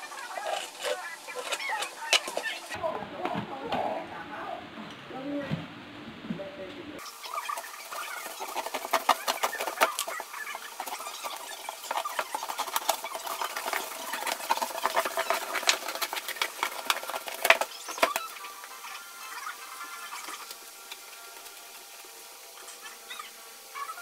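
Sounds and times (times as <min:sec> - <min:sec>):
scissors cutting cardboard: 0:00.3 - 0:02.6.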